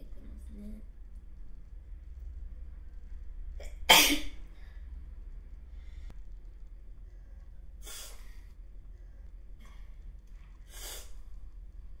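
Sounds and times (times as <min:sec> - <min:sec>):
breathy nasal sound: 0:10.7 - 0:11.2.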